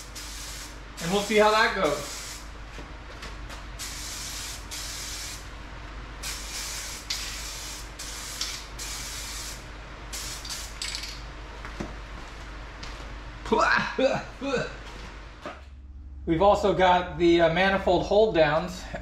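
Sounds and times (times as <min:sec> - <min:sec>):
spray can hissing in short bursts: 0:00.0 - 0:02.4, 0:06.2 - 0:09.6.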